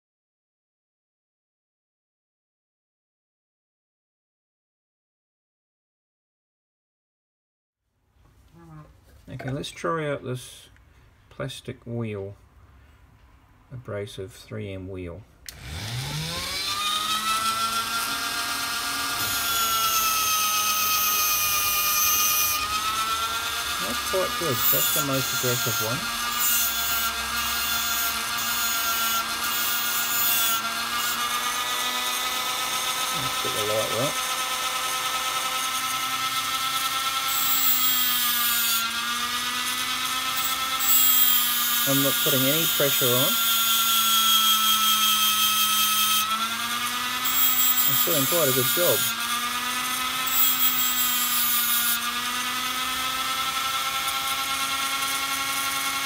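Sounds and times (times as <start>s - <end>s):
rotary tool whining: 15.5s - 56.0s.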